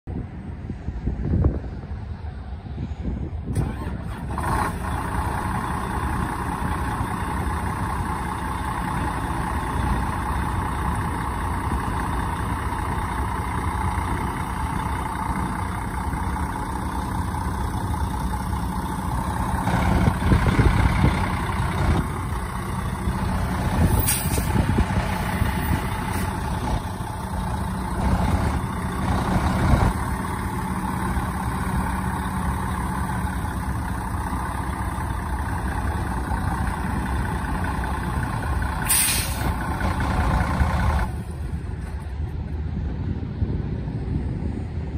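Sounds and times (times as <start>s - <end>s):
diesel truck engine idling: 0.1s - 44.9s
air brake hiss: 23.9s - 24.6s, 38.8s - 39.6s.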